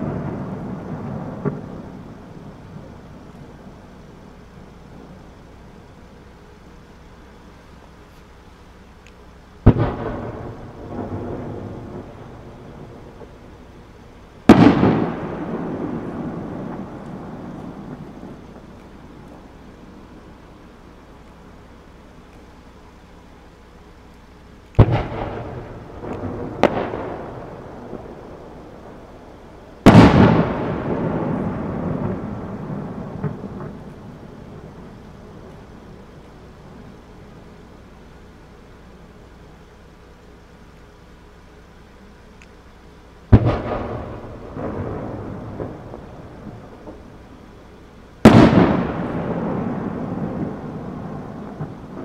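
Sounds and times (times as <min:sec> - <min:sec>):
firework booms with echo: 0:00.0 - 0:03.8, 0:09.6 - 0:19.5, 0:24.8 - 0:36.0, 0:43.3 - 0:47.4, 0:48.2 - 0:52.0.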